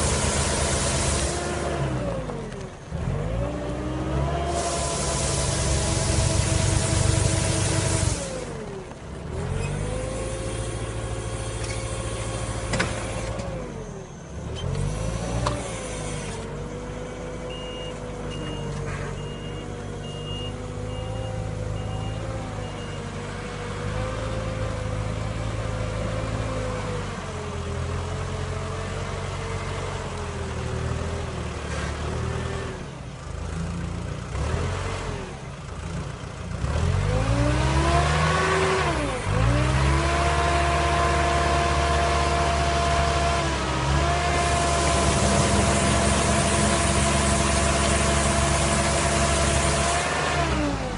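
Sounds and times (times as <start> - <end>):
diesel engine changing revs: 0.0 - 30.0, 34.2 - 35.8, 36.5 - 50.9
reversing alarm beeps: 17.1 - 23.1.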